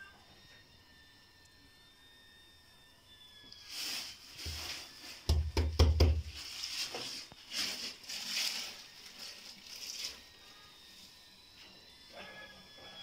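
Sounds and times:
rustling handling noise: 3.6s - 10.3s.

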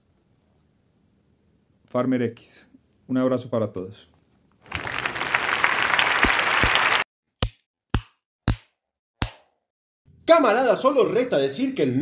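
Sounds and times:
applause: 4.6s - 7.1s.

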